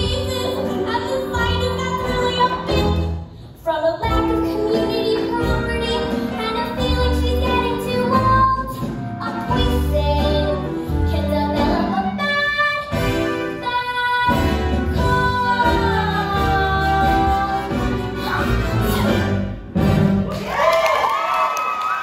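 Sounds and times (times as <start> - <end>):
girl singing: 0.0 - 17.7
musical accompaniment: 0.0 - 20.6.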